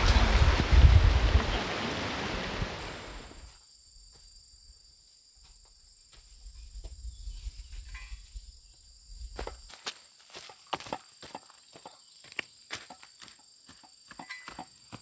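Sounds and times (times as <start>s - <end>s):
rain hiss: 0.0s - 3.6s
crickets chirring: 1.5s - 15.0s.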